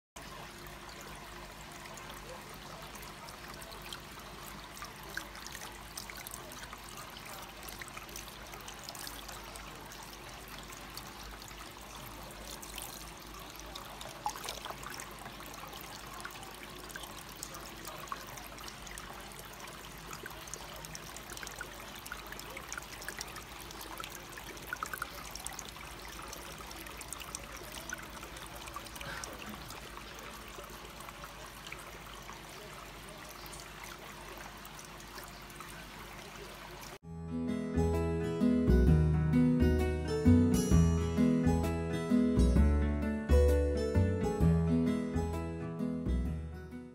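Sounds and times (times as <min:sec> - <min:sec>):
small water splashes: 0:00.2 - 0:37.0
water trickling into basin: 0:00.2 - 0:37.0.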